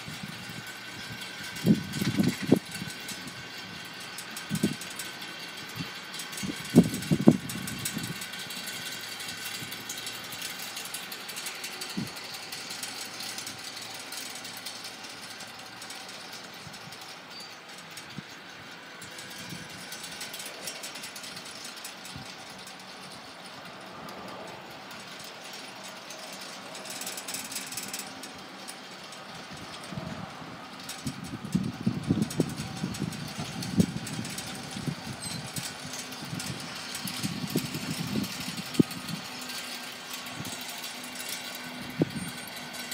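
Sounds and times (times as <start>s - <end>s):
wind buffeting microphone: 0.0s - 4.9s, 5.7s - 8.4s, 29.4s - 39.4s, 41.8s - 42.4s.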